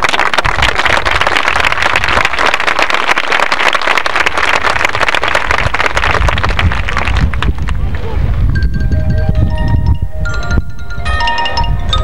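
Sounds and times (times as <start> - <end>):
crowd applauding: 0.0 - 8.1.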